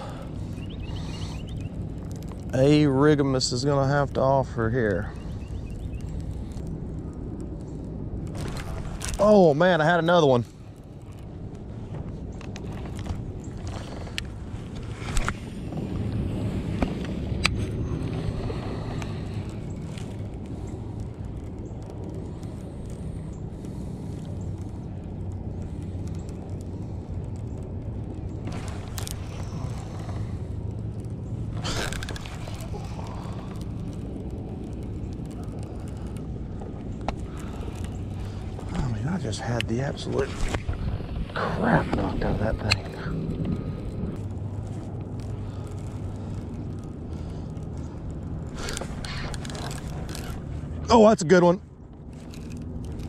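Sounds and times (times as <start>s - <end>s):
wind rumble on microphone: 0.0s - 53.0s.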